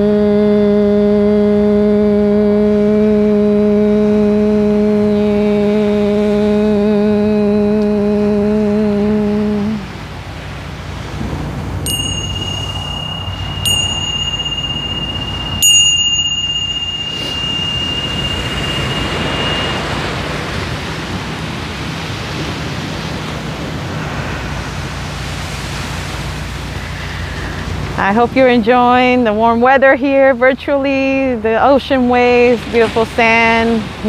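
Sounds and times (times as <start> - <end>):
wind on microphone: 0.0 - 29.2
ocean surf: 3.6 - 28.4
small bell ringing: 11.9 - 21.6.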